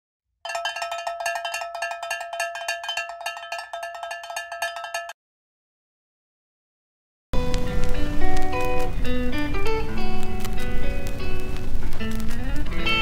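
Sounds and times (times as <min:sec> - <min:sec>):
bell-like metallic jingle: 0:00.5 - 0:05.2.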